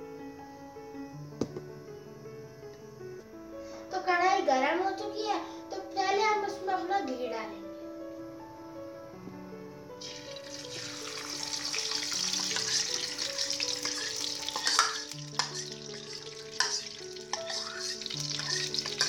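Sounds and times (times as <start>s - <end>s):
background music melody: 0.0s - 19.0s
ghee sizzling in a hot pan: 10.0s - 19.0s
steel spoon clicking against pan: 13.8s - 15.7s.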